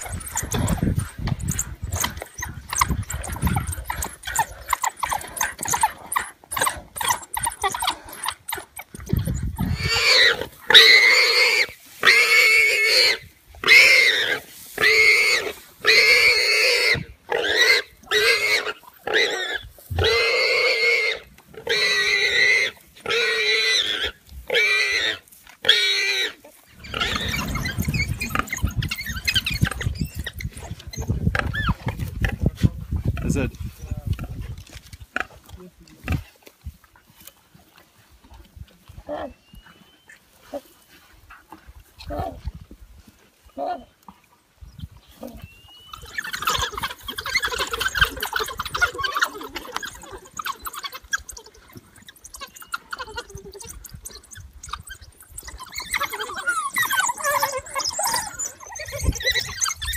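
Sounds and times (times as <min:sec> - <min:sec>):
animal screaming in distress: 0:00.0 - 0:31.9, 0:45.2 - 0:59.9
low rumbling: 0:26.8 - 0:34.5.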